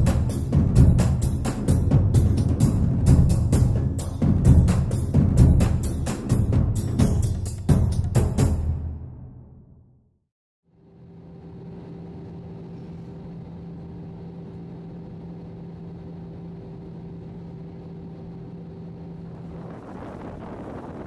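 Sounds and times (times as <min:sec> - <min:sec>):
aircraft engine drone: 0:00.0 - 0:06.6, 0:10.8 - 0:21.0
wind buffeting microphone: 0:19.2 - 0:21.0.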